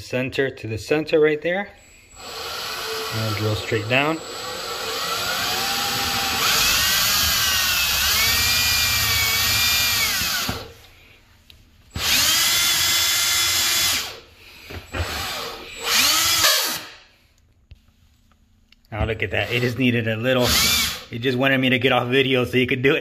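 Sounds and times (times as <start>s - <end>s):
cordless drill whining: 2.1s - 10.7s, 11.9s - 14.2s, 14.9s - 16.9s, 20.4s - 21.0s.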